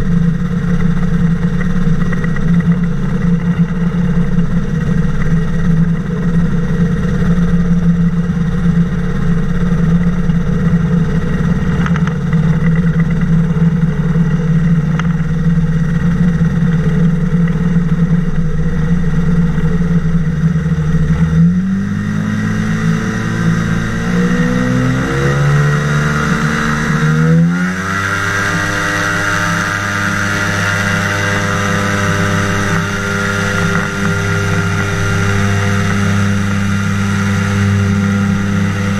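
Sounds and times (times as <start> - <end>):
flying boat engine running: 0.0 - 38.9.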